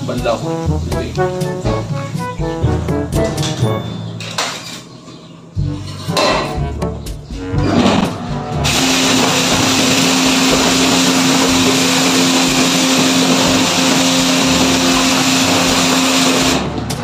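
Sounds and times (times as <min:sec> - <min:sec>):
high-pressure water jet hissing: 0:08.6 - 0:16.7.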